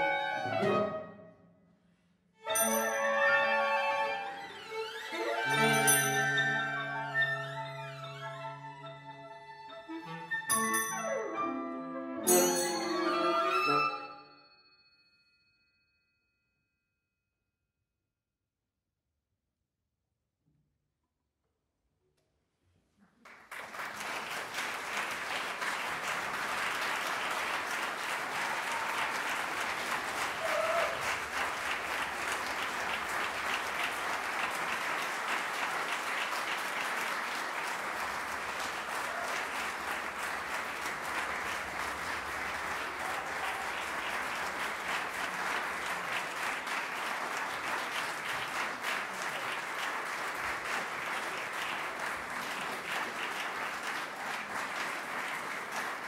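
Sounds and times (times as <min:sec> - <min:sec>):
audience applauding: 0:02.6 - 0:10.8, 0:23.1 - 0:56.0.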